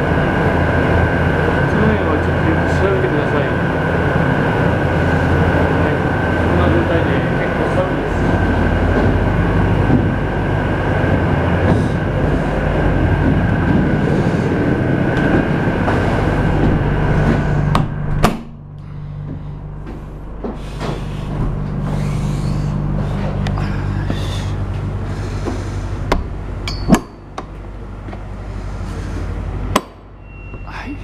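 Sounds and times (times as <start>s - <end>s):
refrigeration unit whirring: 0.0s - 31.0s.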